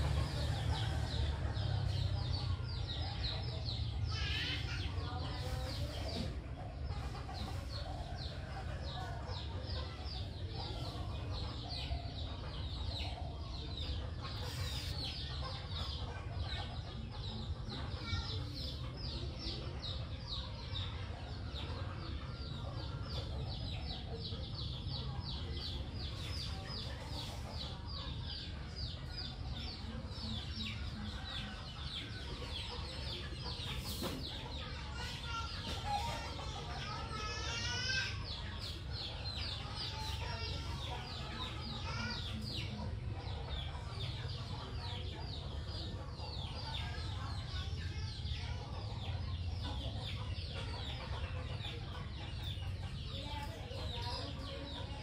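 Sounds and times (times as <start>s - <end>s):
chickens calling: 0.0s - 55.0s.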